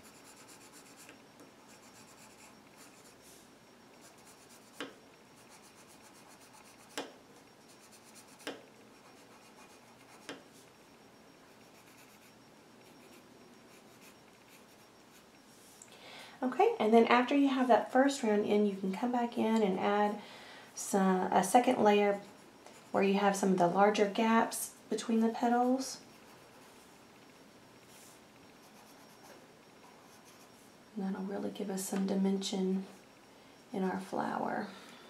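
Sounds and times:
pencil scratching on paper: 0:00.0 - 0:03.2, 0:04.0 - 0:07.0, 0:07.7 - 0:10.4.

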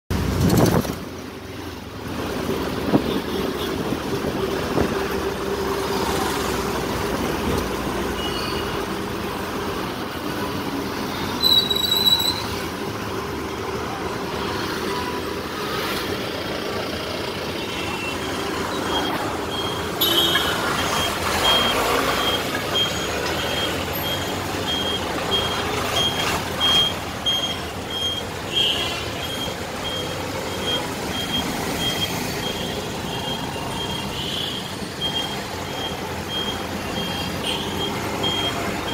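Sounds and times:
passing traffic: 0:00.1 - 0:38.9
road and wind noise: 0:00.1 - 0:38.9
high beeping: 0:18.0 - 0:28.4, 0:29.2 - 0:38.9.

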